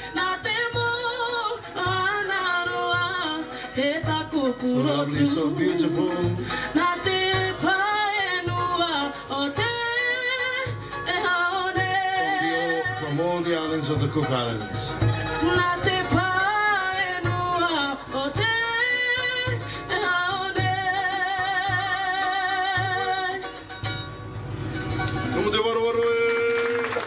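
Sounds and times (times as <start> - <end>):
strummed ukuleles: 0.0 - 27.0
people singing with vibrato: 1.5 - 13.2.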